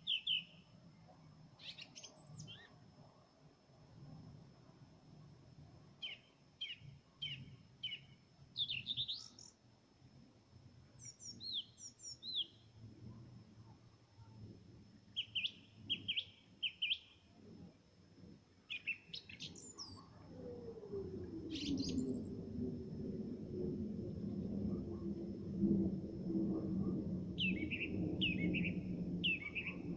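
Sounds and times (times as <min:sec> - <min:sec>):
nightingale singing: 0:00.0 - 0:00.6, 0:01.6 - 0:02.7, 0:06.0 - 0:09.6, 0:11.0 - 0:12.7, 0:15.2 - 0:17.2, 0:18.7 - 0:20.6, 0:21.5 - 0:22.2, 0:27.4 - 0:29.9
low rumble with falling tone: 0:20.2 - 0:29.9.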